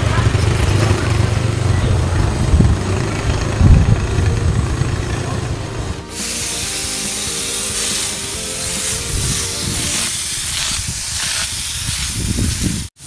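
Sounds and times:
low rumble: 1.0 - 6.1
air spray gun hissing: 6.1 - 13.0.

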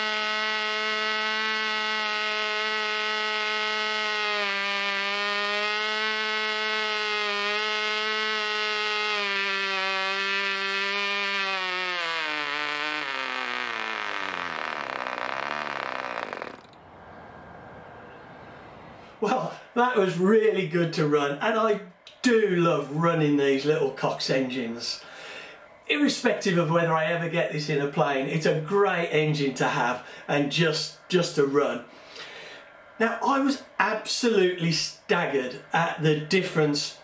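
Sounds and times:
model engine buzzing: 0.0 - 17.0.

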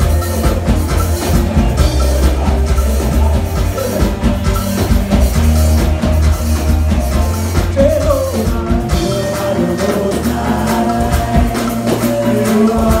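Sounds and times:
backing singers: 0.0 - 13.0
drum kit and band: 0.0 - 13.0
man singing into a microphone: 7.7 - 13.0.

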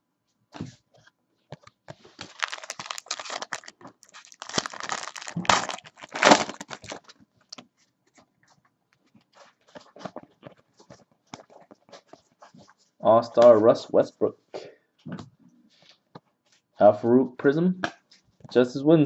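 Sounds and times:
foil pack crinkling: 2.0 - 7.6.

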